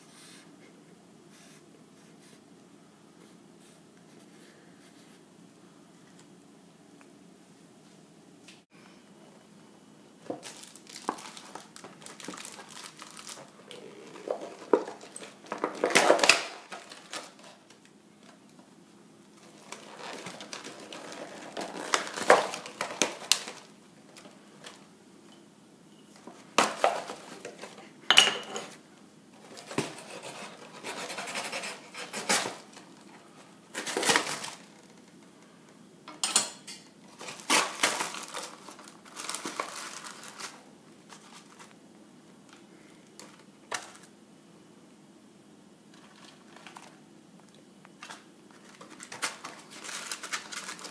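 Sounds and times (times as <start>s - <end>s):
paper bag rustling and crinkling: 10.2s - 18.5s, 19.4s - 24.8s, 29.4s - 35.1s, 37.1s - 41.8s, 45.9s - 47.0s, 48.0s - 50.9s.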